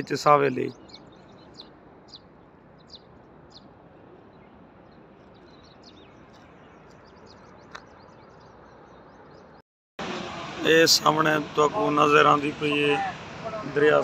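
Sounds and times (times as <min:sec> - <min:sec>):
faint outdoor hiss: 0:00.0 - 0:09.4, 0:10.0 - 0:14.0
small birds chirping: 0:00.0 - 0:09.6.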